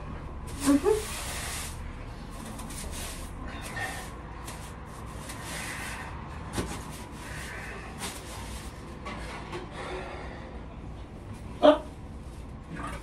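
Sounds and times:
broom sweeping a floor: 0.4 - 8.9.

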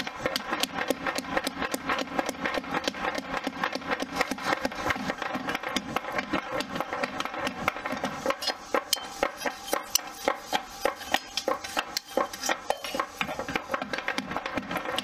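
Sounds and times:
hammer striking hot steel: 0.0 - 15.0.

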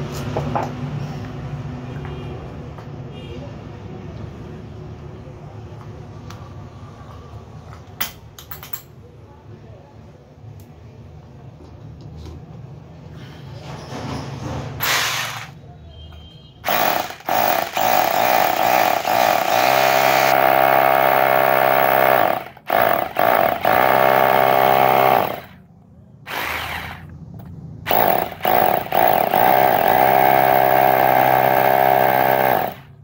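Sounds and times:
hammer drill motor whine: 16.7 - 25.6, 26.3 - 27.1, 27.9 - 32.8.

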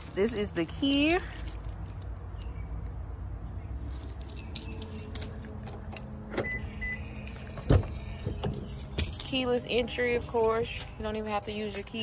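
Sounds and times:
car key jingling: 0.0 - 2.6, 4.0 - 6.2, 7.2 - 12.0.

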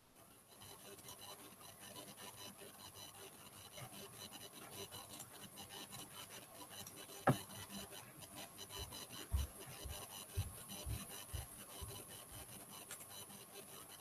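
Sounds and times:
stylus scratching on tablet: 0.2 - 14.0
small clicks: 12.7 - 13.3.

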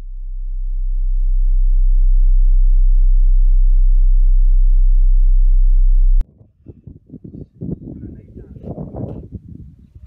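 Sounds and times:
deep electronic tone: 0.0 - 6.2.

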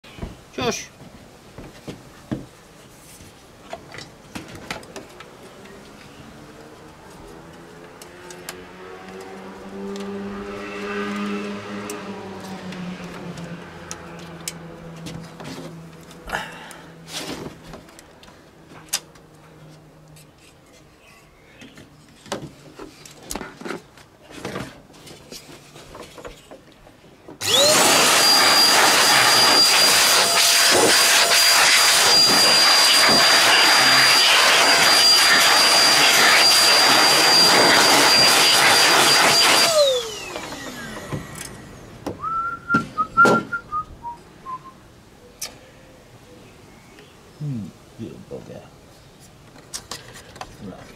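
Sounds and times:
loud rush of air: 27.4 - 42.0
air blower motor whining: 27.4 - 42.4.

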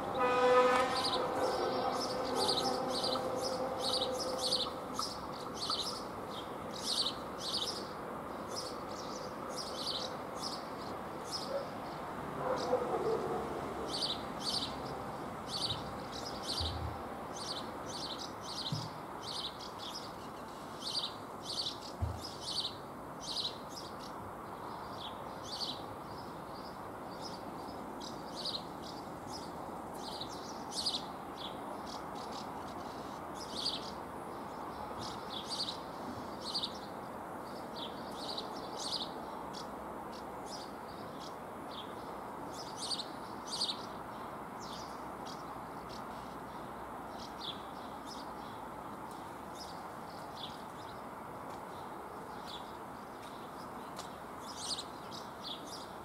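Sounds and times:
birds chirping: 0.0 - 56.0
steady background hiss: 13.2 - 56.0.

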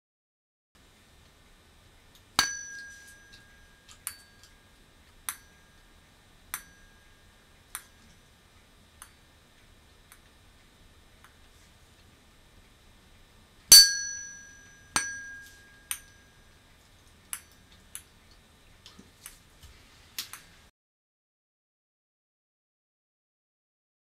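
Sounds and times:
tuning fork ringing: 2.4 - 8.4, 13.7 - 16.7.

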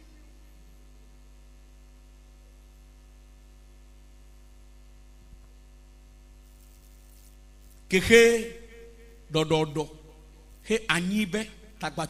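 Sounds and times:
low electrical mains hum: 0.0 - 12.0
faint hiss: 6.4 - 11.0.

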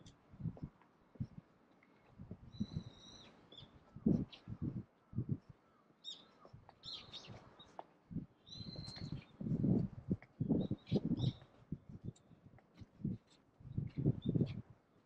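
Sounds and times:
birds chirping: 2.5 - 7.8, 8.4 - 9.5.

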